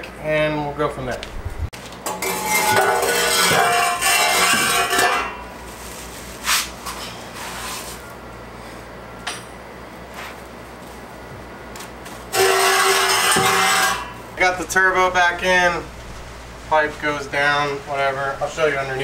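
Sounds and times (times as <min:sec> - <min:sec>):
metal pipe scraping on concrete: 0:02.1 - 0:08.1, 0:12.3 - 0:14.3.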